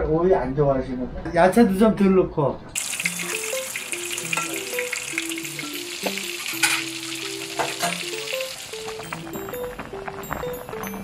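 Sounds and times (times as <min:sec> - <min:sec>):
background music melody: 0:02.8 - 0:11.0
patties sizzling in oil: 0:02.8 - 0:11.0.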